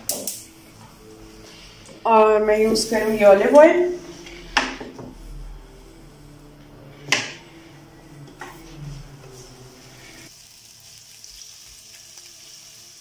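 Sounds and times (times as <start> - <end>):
chicken sizzling in frying pan: 10.3 - 13.0.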